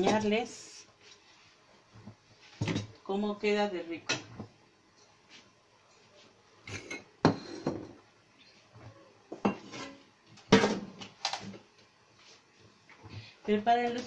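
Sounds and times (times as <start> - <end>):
dishes clattering: 6.6 - 8.0, 9.3 - 10.9.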